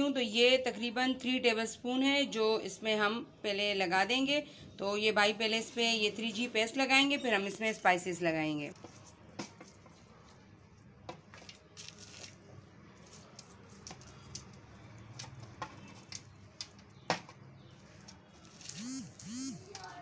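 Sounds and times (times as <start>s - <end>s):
wet squishing of hands on meat: 8.8s - 16.8s.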